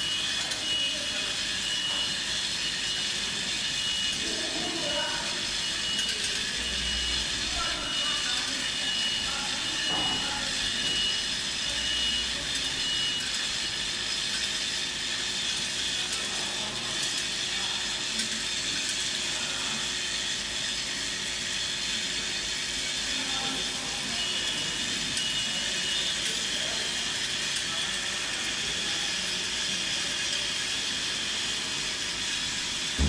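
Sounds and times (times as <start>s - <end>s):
machinery clatter and hum: 5.2s - 19.2s.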